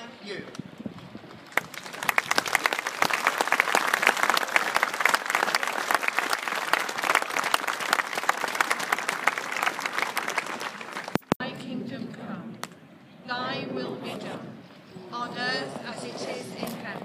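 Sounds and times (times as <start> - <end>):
crowd applauding: 1.5 - 11.3.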